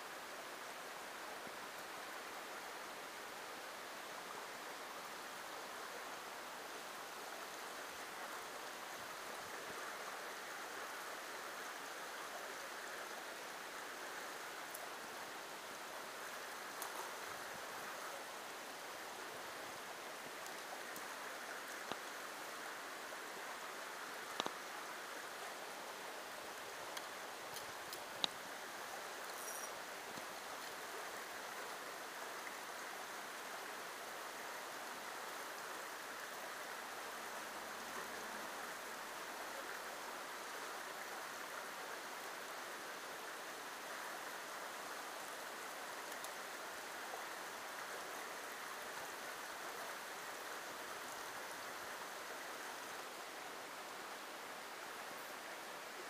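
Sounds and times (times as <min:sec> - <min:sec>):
creek water running over rocks: 0:00.0 - 0:56.0.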